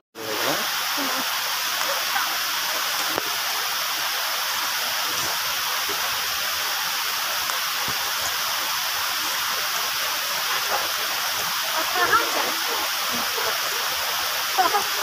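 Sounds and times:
river water rushing: 0:00.2 - 0:15.0.

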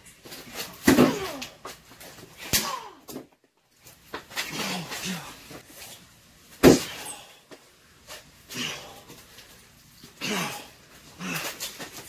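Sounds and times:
people grunting and crying out: 0:01.0 - 0:01.6, 0:04.4 - 0:05.5, 0:10.2 - 0:11.8
loud sudden smack: 0:02.4 - 0:02.9, 0:06.6 - 0:07.0.

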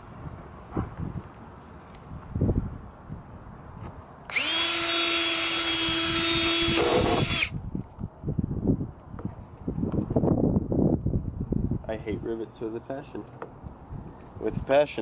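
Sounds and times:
cordless drill whining: 0:04.3 - 0:07.5.

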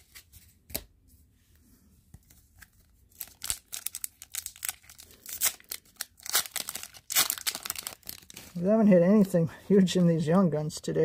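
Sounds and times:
wrapper tearing and crinkling: 0:03.1 - 0:08.7.

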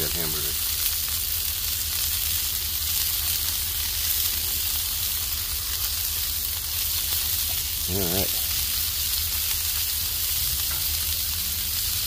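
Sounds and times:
burgers sizzling on a griddle: 0:00.0 - 0:12.0.

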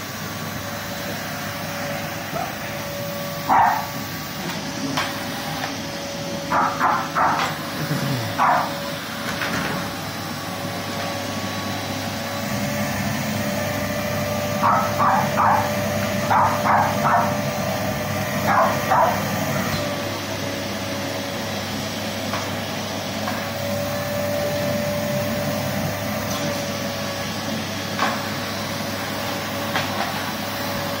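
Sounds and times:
vacuum cleaner whine: 0:00.0 - 0:31.0
dog barking: 0:03.5 - 0:03.9, 0:06.5 - 0:07.5, 0:08.4 - 0:08.8, 0:14.6 - 0:17.4, 0:18.4 - 0:19.3.

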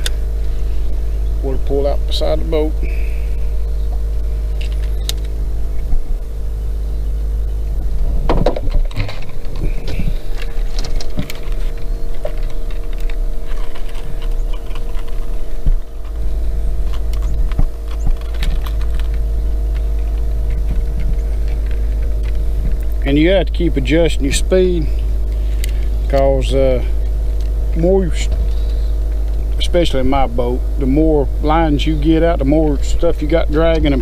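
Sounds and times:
boat motor hum: 0:00.0 - 0:34.0
fishing tackle clicks and rattles: 0:16.9 - 0:19.2.

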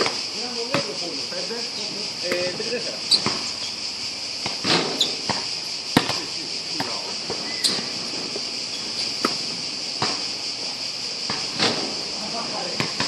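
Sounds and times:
high-pitched insect chorus: 0:00.0 - 0:13.0
basketball bouncing on hard court: 0:02.3 - 0:03.5, 0:06.0 - 0:06.2.

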